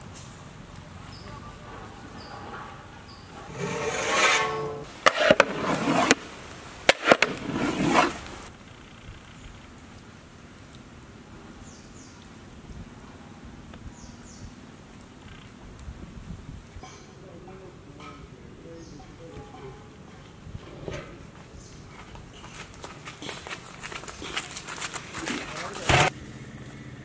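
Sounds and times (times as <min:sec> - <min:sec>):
metal lid squealing onto pot: 0:03.5 - 0:05.3.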